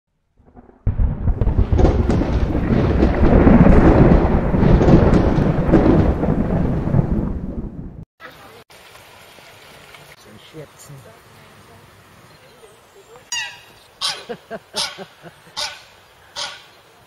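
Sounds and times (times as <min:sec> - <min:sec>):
deep thunder-like rumble: 0:00.4 - 0:08.0.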